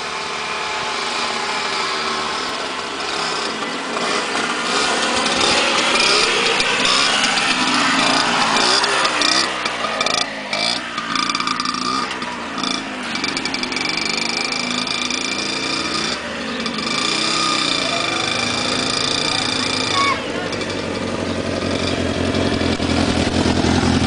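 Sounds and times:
mopeds buzzing past: 0:00.0 - 0:24.0
motorcycles approaching: 0:00.0 - 0:24.0.

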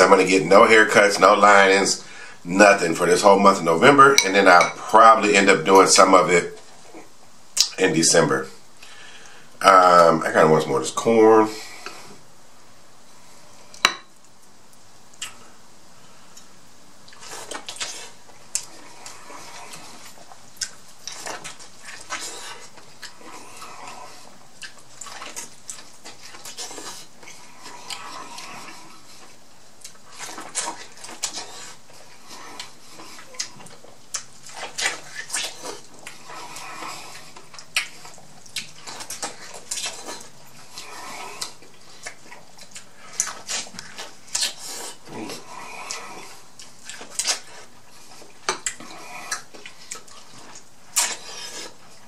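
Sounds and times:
wet chewing and smacking: 0:16.4 - 0:52.0.

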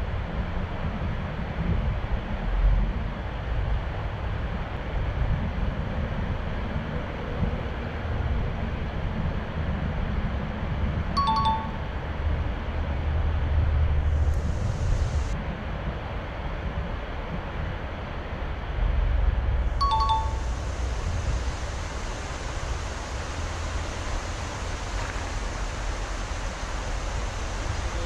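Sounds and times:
wind rumble on microphone: 0:00.0 - 0:28.0
two-note chime: 0:11.2 - 0:12.0, 0:19.8 - 0:20.7.

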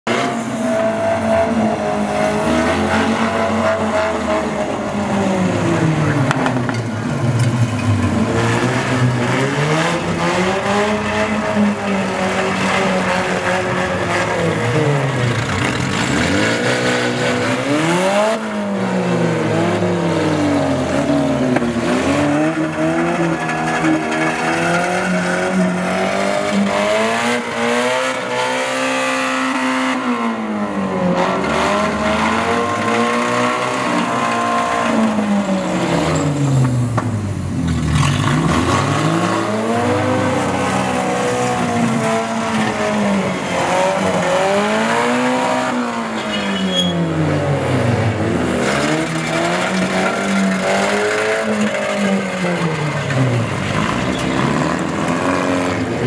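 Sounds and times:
car engines revving: 0:00.0 - 0:56.0.

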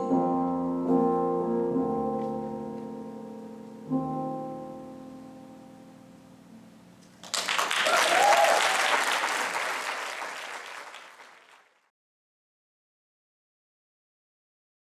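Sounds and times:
keyboard chord: 0:00.0 - 0:06.6
audience applause: 0:07.2 - 0:11.8
person cheering: 0:07.6 - 0:11.0.

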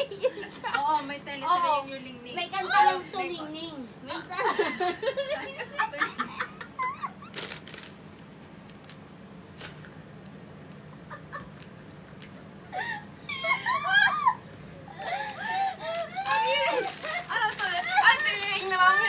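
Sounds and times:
woman squealing laughter: 0:05.9 - 0:07.3, 0:12.7 - 0:18.2
plastic snack bag crinkling: 0:07.3 - 0:08.0, 0:15.3 - 0:19.0.

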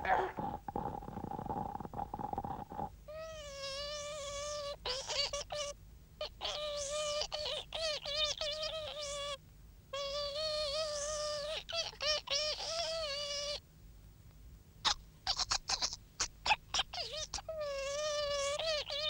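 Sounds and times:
squeaky cartoon vocal sounds: 0:00.0 - 0:09.4, 0:14.9 - 0:19.0.

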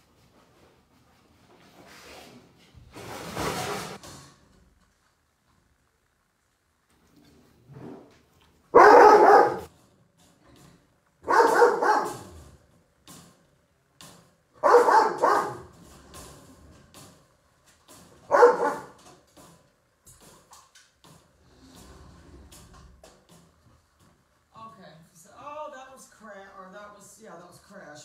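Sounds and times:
puppy barking: 0:08.8 - 0:09.7, 0:11.2 - 0:12.4, 0:14.6 - 0:15.7, 0:18.3 - 0:19.0.

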